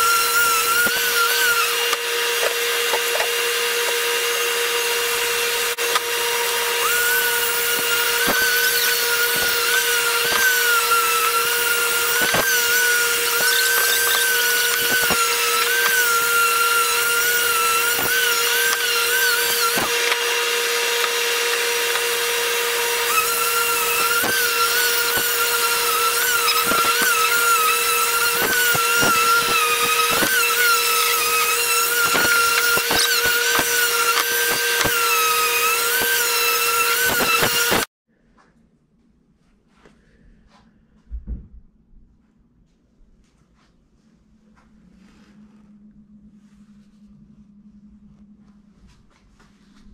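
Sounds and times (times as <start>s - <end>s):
orbital sander whining on wood: 0.0s - 37.9s.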